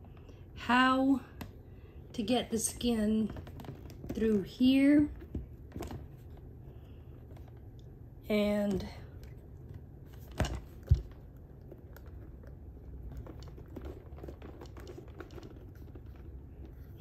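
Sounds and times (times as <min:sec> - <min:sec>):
rustling and clicking of plastic toy: 0:03.2 - 0:07.9, 0:08.8 - 0:17.0.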